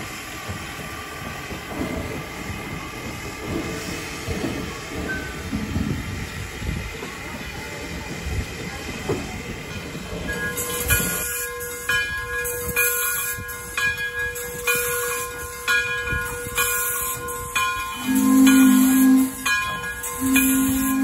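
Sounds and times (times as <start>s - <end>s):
steam locomotive hissing: 0.0s - 21.0s
locomotive bell ringing: 9.7s - 21.0s.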